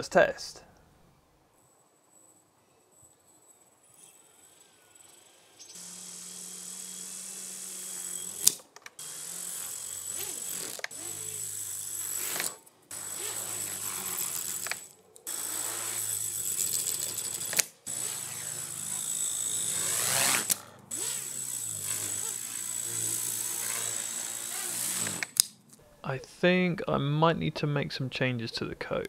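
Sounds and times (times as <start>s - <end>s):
electric rotor motor whining: 3.0s - 25.7s.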